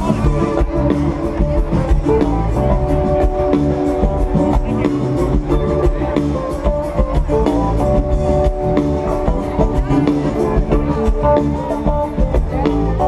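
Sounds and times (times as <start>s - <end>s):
drum kit steady beat: 0.0s - 13.0s
electric guitar: 0.0s - 13.0s
live band through loudspeakers: 0.0s - 13.0s.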